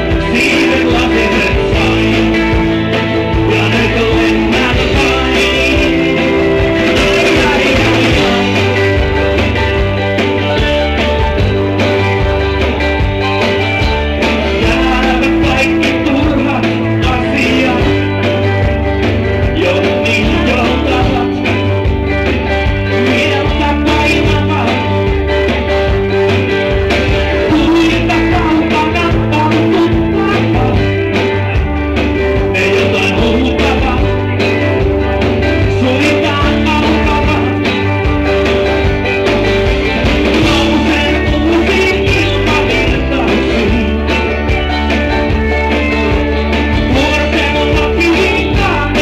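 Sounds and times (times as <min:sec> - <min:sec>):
live rock band playing: 0:00.0 - 0:49.0.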